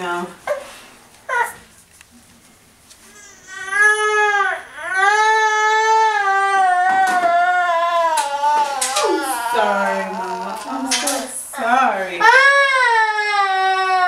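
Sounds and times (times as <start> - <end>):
baby girl crying: 3.1 - 11.2, 12.2 - 14.0.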